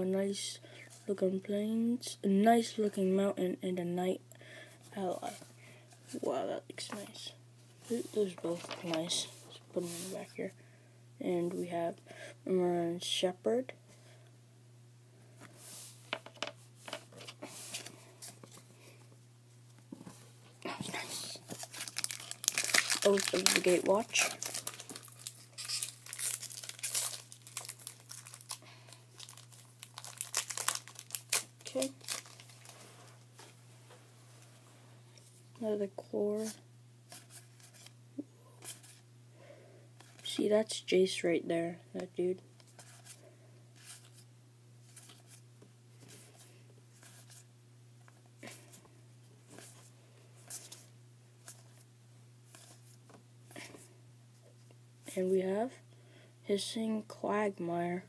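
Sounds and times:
low electrical hum: 0.0 - 58.0
wrapper and cards rustling: 7.8 - 10.4, 20.8 - 33.5.

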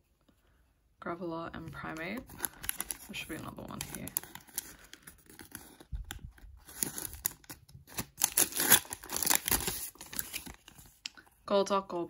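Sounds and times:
packaging rustling and crinkling: 1.8 - 11.0.

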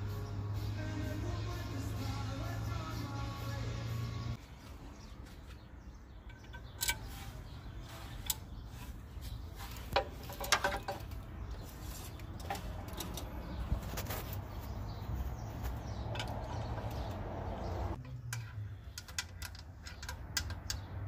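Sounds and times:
metal tools clinking on engine parts: 5.4 - 14.5, 16.0 - 17.2, 17.9 - 20.9.

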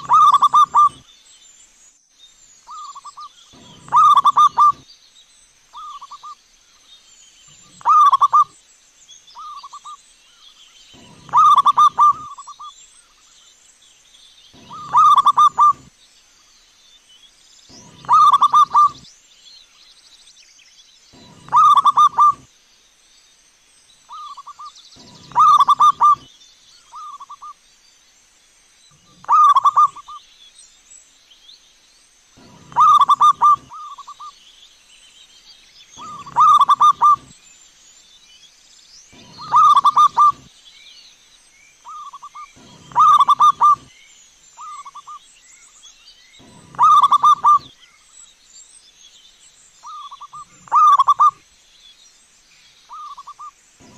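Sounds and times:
dove cooing: 0.0 - 1.0, 2.7 - 4.8, 7.7 - 8.5, 11.0 - 12.7, 14.6 - 15.9, 17.7 - 19.0, 21.2 - 22.5, 24.1 - 26.3, 29.0 - 30.2, 32.4 - 34.3, 36.0 - 37.3, 39.2 - 40.5, 41.9 - 43.9, 46.4 - 47.7, 49.9 - 51.4.

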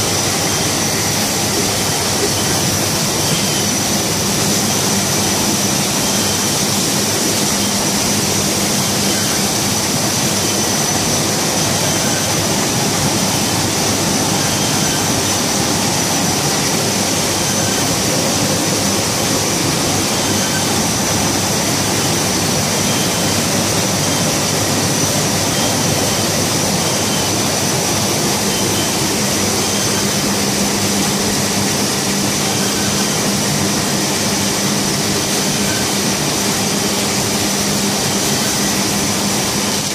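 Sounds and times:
printing press running: 0.0 - 39.9.

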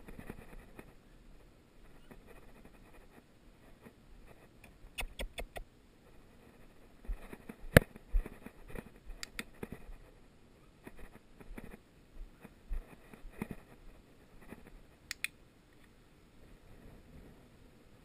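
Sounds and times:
faint rustling on grass: 0.0 - 15.1, 15.8 - 18.0
training clicker clicks: 9.2 - 9.5, 15.1 - 15.4.

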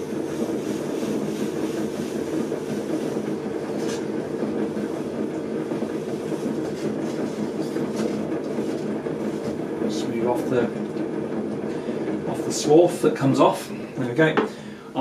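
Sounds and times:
wooden tool scraping clay: 0.0 - 10.7
potter's wheel motor hum: 0.0 - 15.0.

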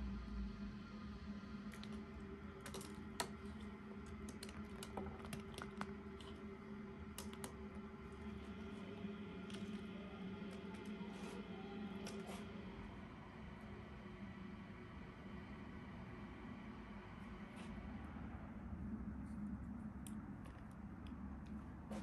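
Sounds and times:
steady low hum: 0.0 - 22.0
seeds clicking on foil: 1.7 - 8.3.

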